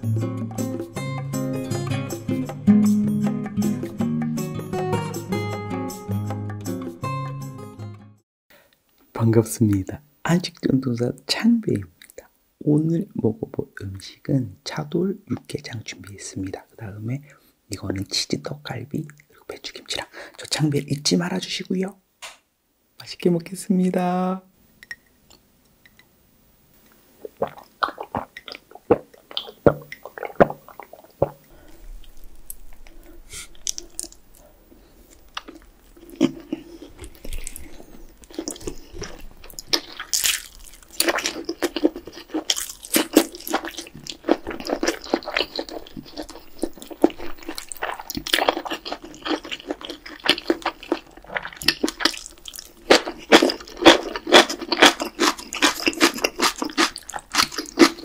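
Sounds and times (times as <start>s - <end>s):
wet chewing and smacking: 26.9s - 34.5s, 35.1s - 58.0s.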